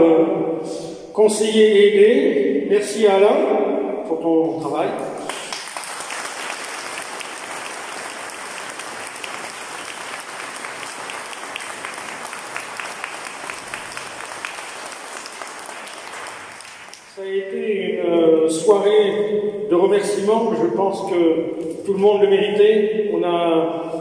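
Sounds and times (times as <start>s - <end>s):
audience applauding: 5.2s - 17.1s.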